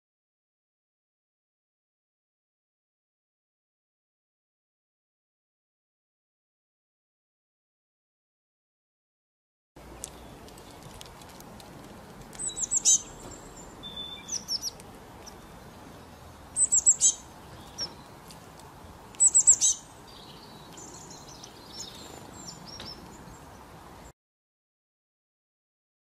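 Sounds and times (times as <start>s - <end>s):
birds twittering softly: 9.8s - 24.1s
songbirds chirping: 9.8s - 24.1s.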